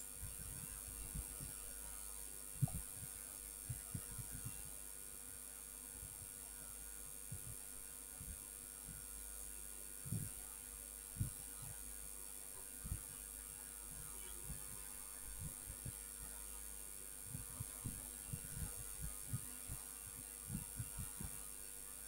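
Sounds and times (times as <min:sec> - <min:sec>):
electrical hum: 0:00.0 - 0:22.0
faint high whine: 0:00.0 - 0:22.0
soft low thumps: 0:00.2 - 0:01.6, 0:02.6 - 0:04.8, 0:07.3 - 0:09.1, 0:10.0 - 0:10.4, 0:11.2 - 0:11.8, 0:13.9 - 0:16.1, 0:17.2 - 0:21.4.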